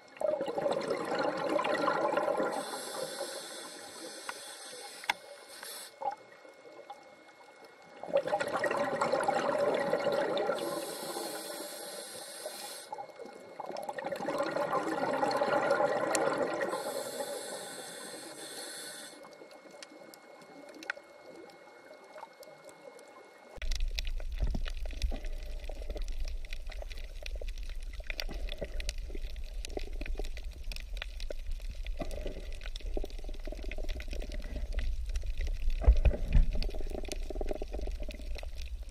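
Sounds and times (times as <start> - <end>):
bubbling exhales: 0.0 - 4.1, 8.0 - 19.2, 31.6 - 38.9
low hum with crackling: 0.0 - 38.9
diver breathing through regulator: 2.4 - 6.0, 10.5 - 13.0, 16.6 - 19.2.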